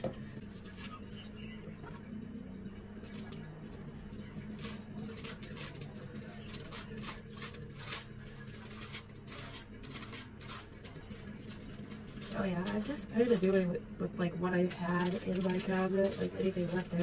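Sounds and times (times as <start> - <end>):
foil crinkling: 0.5 - 1.3, 3.0 - 13.8, 14.5 - 17.0
brush scraping on hair: 4.4 - 13.7, 14.6 - 17.0.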